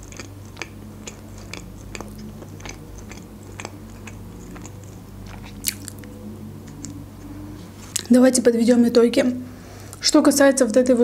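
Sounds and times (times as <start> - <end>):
wet mouth clicks: 0.0 - 7.0
chewing soft doughnut: 0.0 - 8.1
steady low hum: 0.0 - 11.0.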